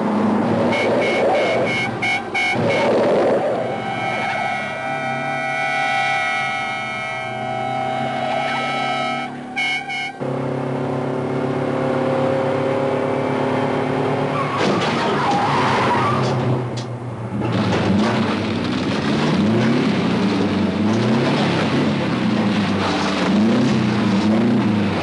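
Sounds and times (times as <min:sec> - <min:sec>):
engine revving: 0:00.0 - 0:09.5, 0:17.3 - 0:25.0
tyres skidding and squealing: 0:00.0 - 0:10.6, 0:11.6 - 0:25.0.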